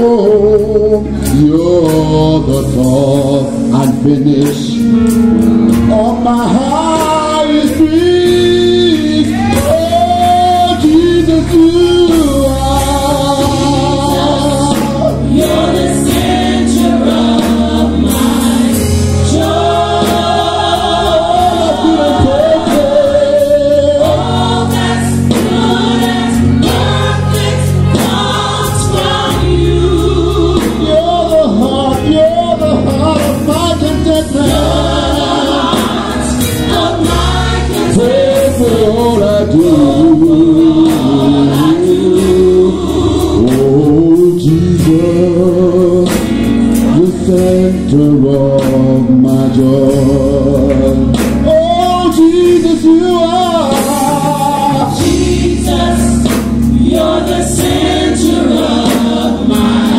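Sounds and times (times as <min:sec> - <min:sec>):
male lead singer: 0:00.0 - 0:05.0, 0:05.7 - 0:17.3, 0:19.3 - 0:24.8, 0:27.3 - 0:57.2
women backing singers: 0:12.7 - 0:31.1, 0:33.4 - 0:44.4, 0:53.3 - 0:59.9.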